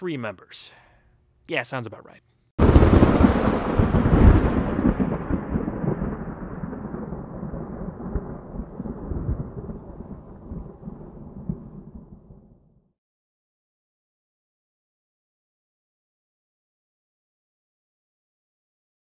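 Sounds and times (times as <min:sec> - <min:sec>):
thunder rumbling: 0:02.6 - 0:12.8.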